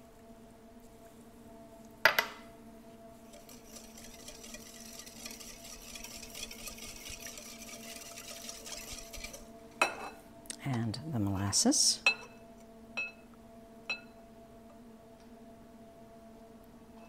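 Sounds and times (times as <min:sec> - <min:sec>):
whisk swishing in bowl: 0:03.2 - 0:09.5.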